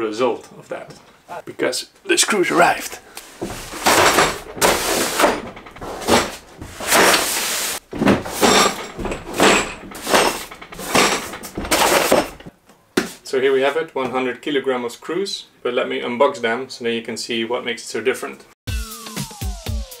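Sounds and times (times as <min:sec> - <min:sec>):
cardboard scraping on wood: 0:03.2 - 0:12.5.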